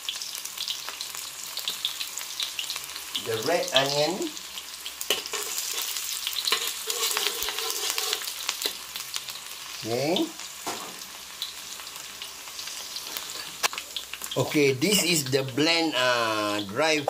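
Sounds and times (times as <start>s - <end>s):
onions sizzling in oil: 0.0s - 17.0s
metal spatula scraping a pan: 5.0s - 8.8s.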